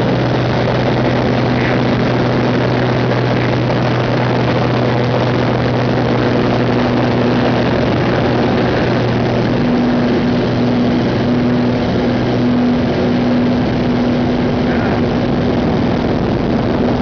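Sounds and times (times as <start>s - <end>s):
propeller plane engine droning: 0.0s - 17.0s
wind rush: 0.0s - 17.0s.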